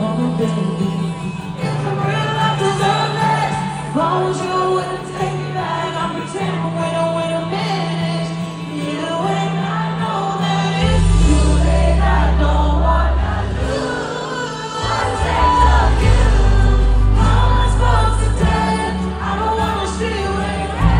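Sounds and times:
woman singing pop ballad: 0:00.0 - 0:20.9
live band accompaniment: 0:07.4 - 0:20.9.

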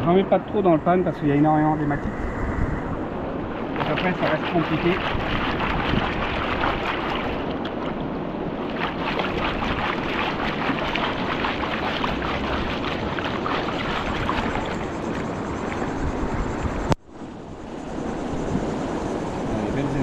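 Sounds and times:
water sloshing and splashing: 0:03.2 - 0:16.4.

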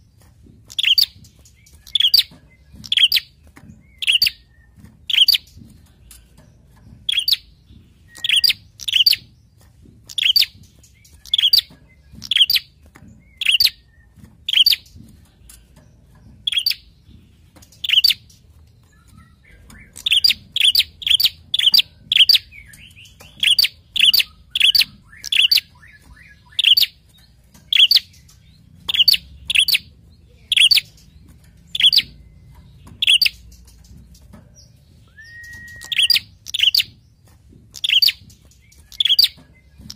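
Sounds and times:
bird sharp chip calls: 0:00.7 - 0:03.3, 0:03.9 - 0:05.6, 0:07.1 - 0:07.5, 0:08.1 - 0:09.2, 0:10.1 - 0:12.7, 0:13.3 - 0:13.8, 0:14.4 - 0:14.9, 0:16.4 - 0:16.9, 0:19.0 - 0:27.0, 0:27.7 - 0:31.1, 0:31.7 - 0:32.2, 0:35.0 - 0:37.0, 0:37.7 - 0:39.9.

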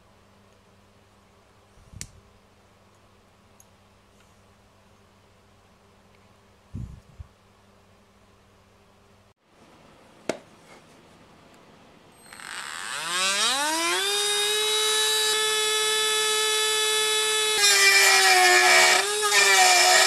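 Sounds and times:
rotary tool whining: 0:12.2 - 0:20.0.

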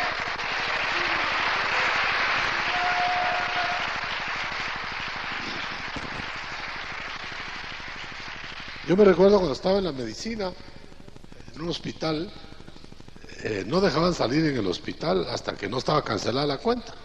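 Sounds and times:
congregation applauding: 0:00.0 - 0:09.7.

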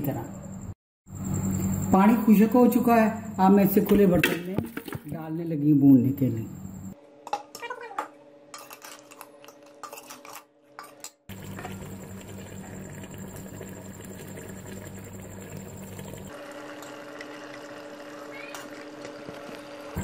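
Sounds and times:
metal spoon scraping pot: 0:08.5 - 0:11.8.

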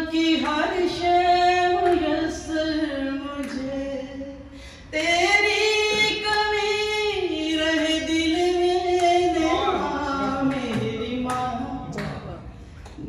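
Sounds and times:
woman singing unaccompanied: 0:00.0 - 0:12.2.

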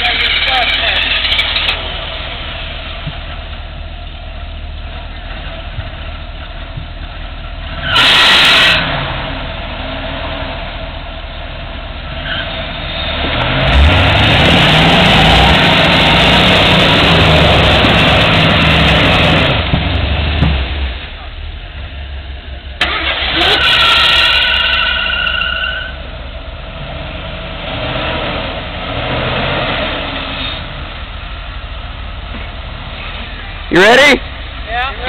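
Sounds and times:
engine idling and revving: 0:00.0 - 0:35.0.

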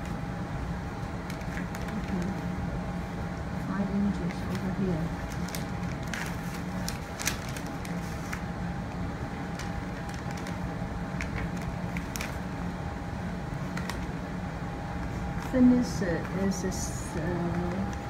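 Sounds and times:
steady room hum: 0:00.0 - 0:18.0
paper rustling: 0:04.3 - 0:08.4, 0:11.2 - 0:12.4.

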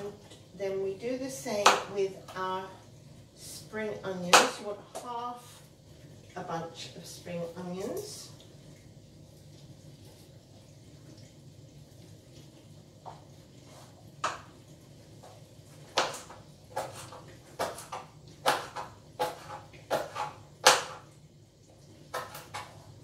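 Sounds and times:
knife chopping vegetables: 0:01.6 - 0:02.0, 0:15.8 - 0:21.1, 0:22.1 - 0:22.9.

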